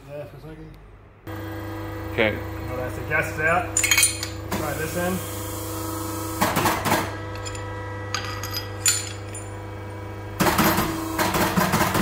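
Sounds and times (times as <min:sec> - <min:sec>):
steady low hum: 0:07.0 - 0:10.4.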